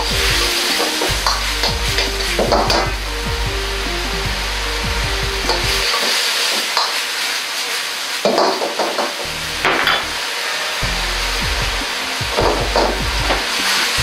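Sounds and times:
sauce sizzling in a wok: 5.8s - 9.4s.

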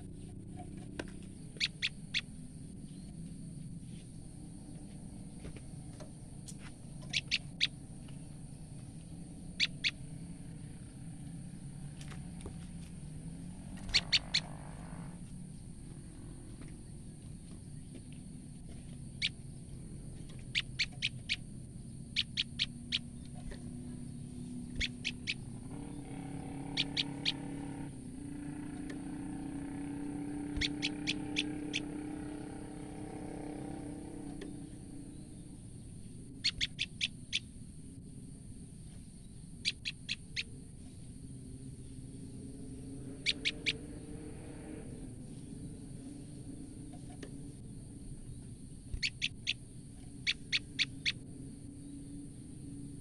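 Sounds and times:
low background hum: 0.0s - 53.0s
bird alarm calls: 1.3s - 3.1s, 7.0s - 7.9s, 9.2s - 10.6s, 13.8s - 15.2s, 19.1s - 19.4s, 20.3s - 23.3s, 24.5s - 27.9s, 28.5s - 35.4s, 36.3s - 37.5s, 39.6s - 40.6s, 43.0s - 44.1s, 48.9s - 52.0s.

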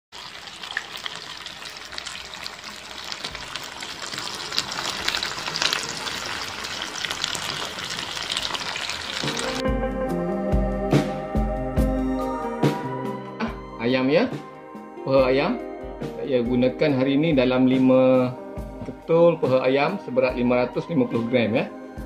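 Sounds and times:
chicken sizzling in a pan: 0.1s - 9.6s.

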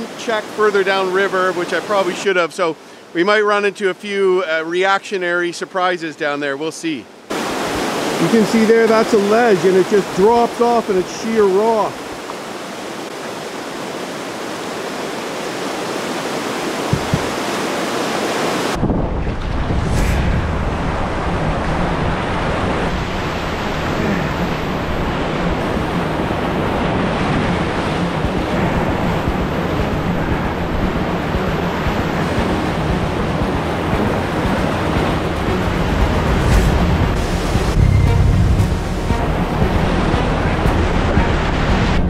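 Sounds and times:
waves crashing around boat: 0.0s - 42.0s
whitewater rushing over rocks: 7.3s - 18.8s
wind rumbling on microphone: 16.1s - 17.7s, 18.5s - 42.0s.

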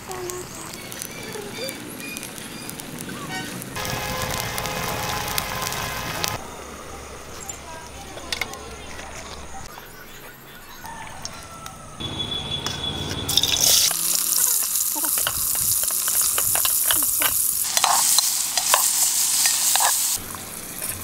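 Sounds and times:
onions sizzling in hot oil: 0.0s - 6.4s, 13.3s - 21.0s.

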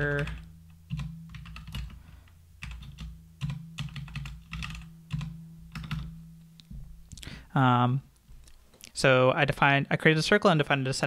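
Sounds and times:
computer keyboard typing: 0.0s - 2.0s, 2.6s - 6.1s
steady low hum: 0.0s - 8.9s.

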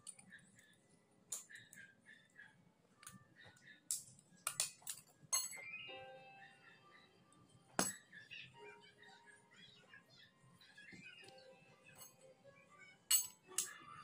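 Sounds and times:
metal parts and screwdriver clinking: 13.1s - 13.7s.

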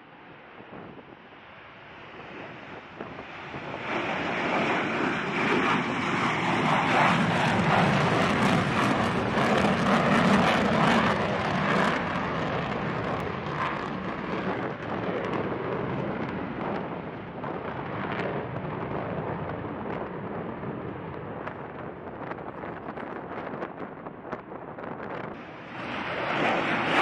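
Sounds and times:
jet engines roaring on takeoff: 0.0s - 27.0s.

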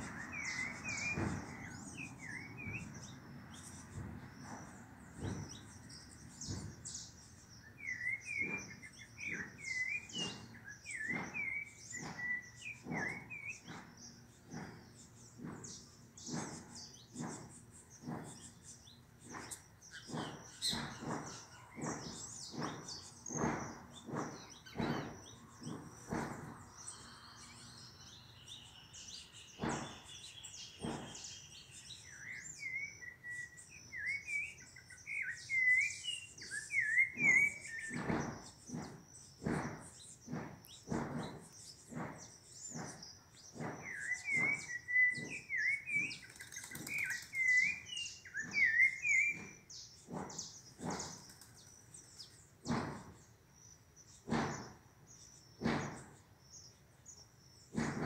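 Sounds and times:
fast bird trill: 0.0s - 58.0s
songbird calling sharp notes: 0.0s - 58.0s
wavering whistled bird phrases: 6.6s - 13.8s, 27.5s - 38.9s, 42.7s - 49.7s.

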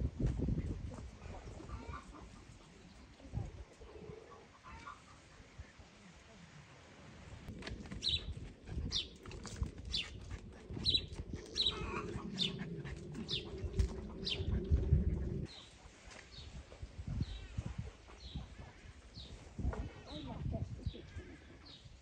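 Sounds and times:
low rumble: 7.5s - 15.6s.

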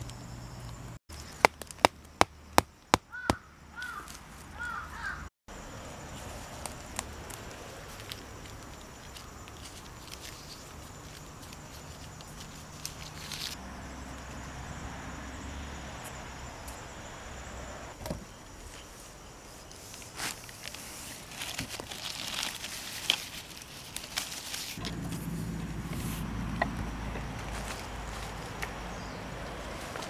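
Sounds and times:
rustling of plants: 3.8s - 13.6s, 18.3s - 30.0s.

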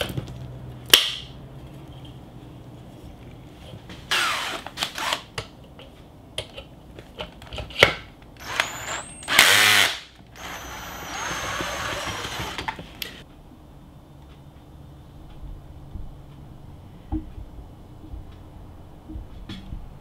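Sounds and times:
cordless drill motor running: 8.4s - 13.2s.

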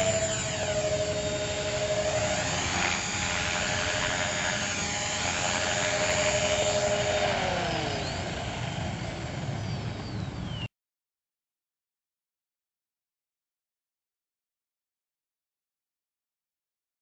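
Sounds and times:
toy helicopter motor whining: 0.0s - 9.5s.

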